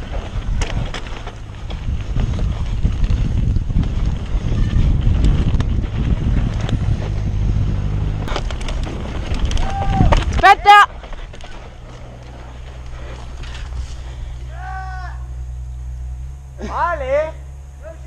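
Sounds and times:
wind buffeting microphone: 0.0s - 14.5s
bike rattle: 0.0s - 18.0s
tyres rumbling on dirt: 0.0s - 18.0s
sharp knocks over bumps: 4.9s - 14.4s.

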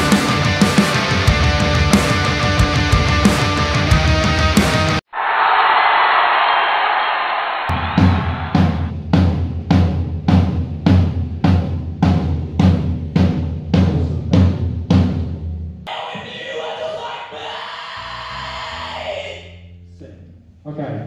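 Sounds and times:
drum kit slow beat: 0.0s - 5.0s, 7.7s - 15.4s.

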